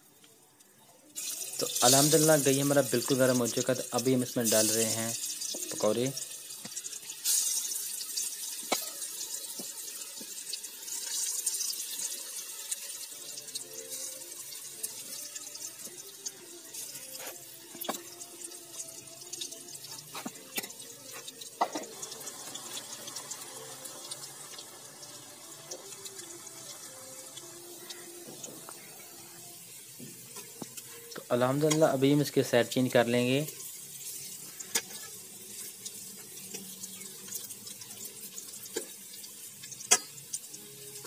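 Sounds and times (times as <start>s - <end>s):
deep-frying sizzle: 0.0s - 41.0s
oil pops and crackles: 6.6s - 11.6s, 17.7s - 18.2s, 39.6s - 40.5s.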